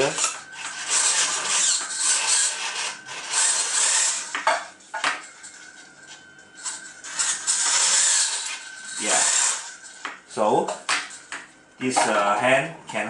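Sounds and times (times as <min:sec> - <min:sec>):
servo motors whirring: 0:00.0 - 0:04.4, 0:06.6 - 0:10.0.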